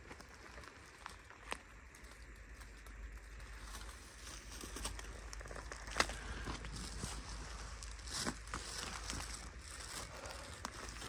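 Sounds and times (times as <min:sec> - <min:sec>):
twigs snapping: 0:00.0 - 0:11.0
footsteps through leaf litter: 0:03.8 - 0:11.0.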